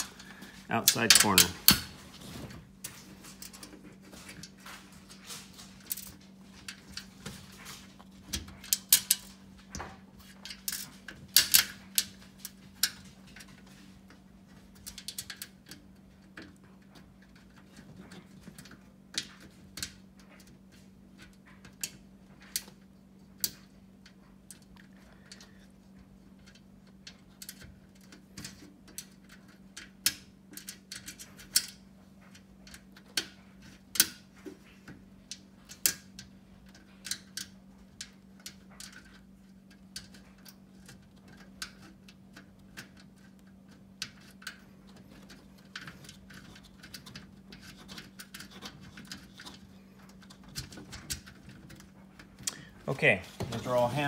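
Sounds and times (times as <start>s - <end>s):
faint steady hum: 0.0s - 54.0s.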